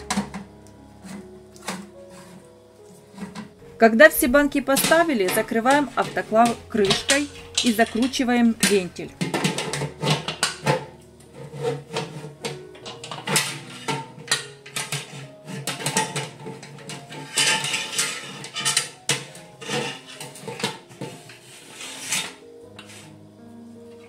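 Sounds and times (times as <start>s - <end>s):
metal lid clanking: 0.0s - 0.5s, 4.2s - 11.0s, 11.6s - 21.4s
background music: 0.0s - 24.0s.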